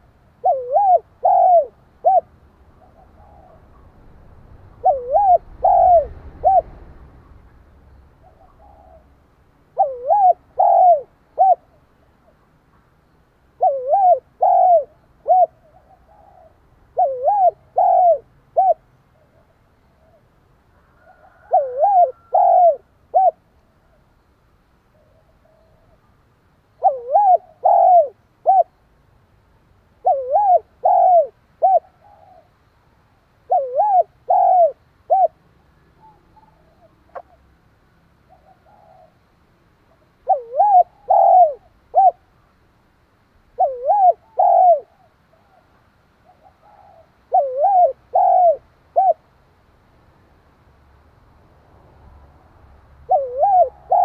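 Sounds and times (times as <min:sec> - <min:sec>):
dove cooing: 0:00.0 - 0:04.0, 0:04.7 - 0:06.9, 0:08.2 - 0:12.4, 0:13.6 - 0:24.0, 0:26.7 - 0:28.8, 0:30.0 - 0:32.6, 0:33.4 - 0:35.4, 0:38.2 - 0:39.2, 0:39.9 - 0:42.3, 0:43.5 - 0:49.2, 0:53.0 - 0:54.0.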